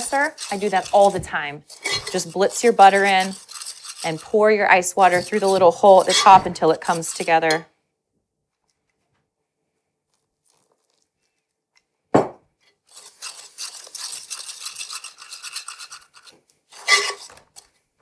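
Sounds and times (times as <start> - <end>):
fork scraping ceramic bowl: 0.0 - 7.6, 12.9 - 17.6
rapid scratching: 0.0 - 7.6, 12.9 - 17.6
knock: 12.2 - 12.4.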